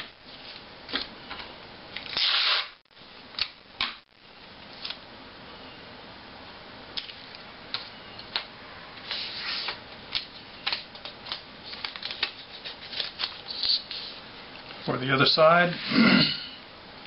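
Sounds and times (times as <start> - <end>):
tape and paper crackling: 7.0 - 14.2.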